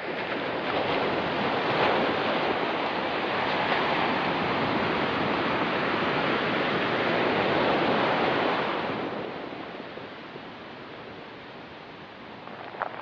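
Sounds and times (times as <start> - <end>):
surf washing onto rocks: 12.2 - 13.0.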